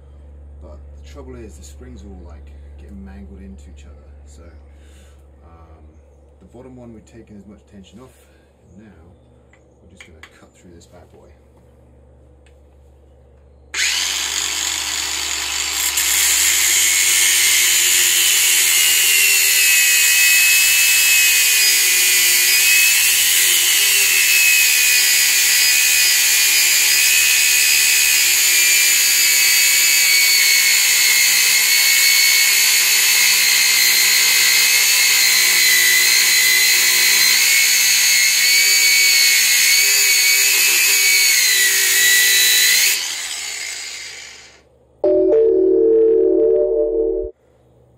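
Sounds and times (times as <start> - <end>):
angle grinder cutting steel: 13.8 - 44.6.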